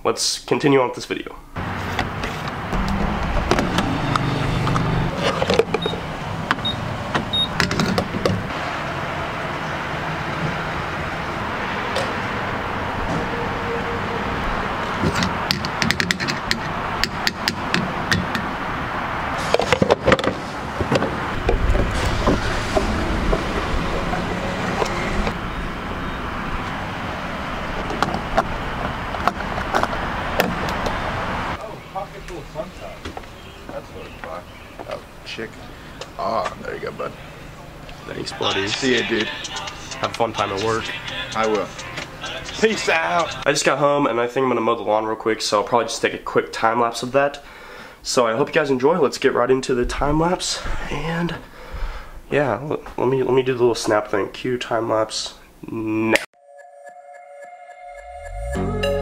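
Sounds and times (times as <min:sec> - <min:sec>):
low vehicle hum: 0:01.6 - 0:43.5
fuel pump beeps: 0:05.8 - 0:06.0, 0:06.6 - 0:07.6, 0:56.4 - 0:59.0.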